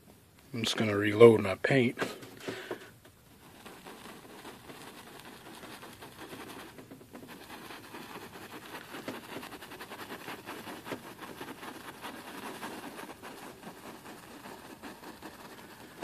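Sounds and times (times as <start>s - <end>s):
brush scratching on canvas: 3.3s - 16.0s.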